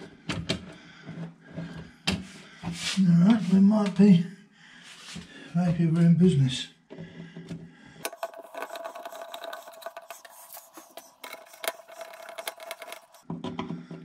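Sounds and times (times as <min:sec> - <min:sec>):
plastic parts clicking and scraping: 0:07.4 - 0:14.0.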